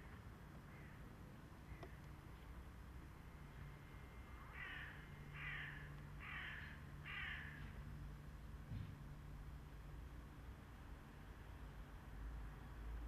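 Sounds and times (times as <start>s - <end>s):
crow cawing: 4.5s - 7.7s.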